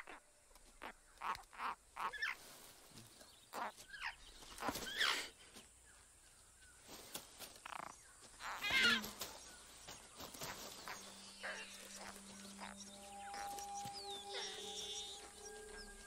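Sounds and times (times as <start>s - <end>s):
bird chicks raspy squawks: 3.5s - 5.4s, 7.7s - 9.4s, 10.3s - 15.9s
bird chicks chirping: 7.7s - 16.0s.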